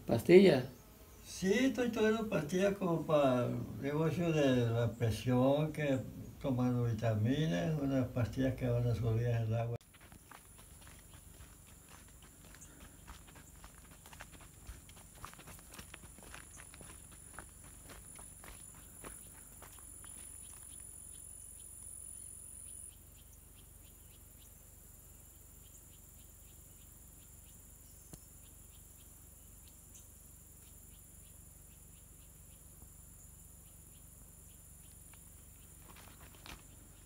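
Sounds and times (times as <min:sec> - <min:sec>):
high continuous buzz: 0:00.0 - 0:37.0
high-pitched insect chorus: 0:00.0 - 0:37.0
footsteps on dirt path: 0:09.8 - 0:21.2, 0:34.9 - 0:37.0.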